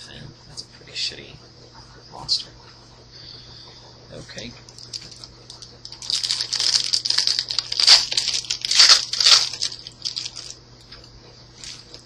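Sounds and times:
foil wrapper crinkling and tearing: 0:04.8 - 0:10.6, 0:11.6 - 0:12.0.

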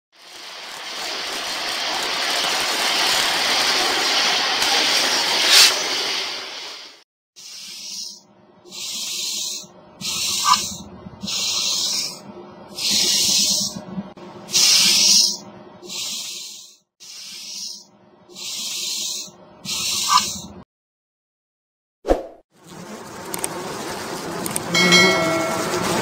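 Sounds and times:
cockroach hissing: 0:05.4 - 0:06.0, 0:07.4 - 0:12.2, 0:12.8 - 0:13.8, 0:14.5 - 0:20.5.

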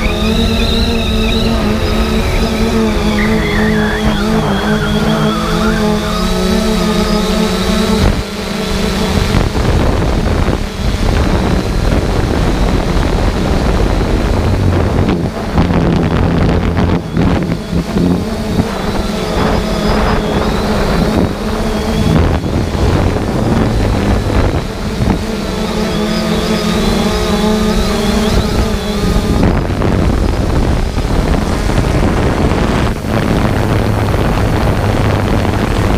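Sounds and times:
drone propellers buzzing: 0:00.0 - 0:35.9
wind rushing over microphone: 0:00.0 - 0:35.9.

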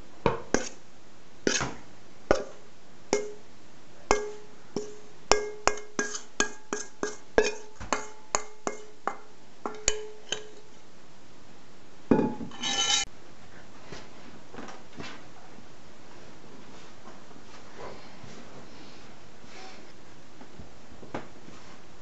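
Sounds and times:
metal bowl knocked and tapped: 0:03.2 - 0:03.4, 0:04.1 - 0:10.7, 0:12.1 - 0:12.8.

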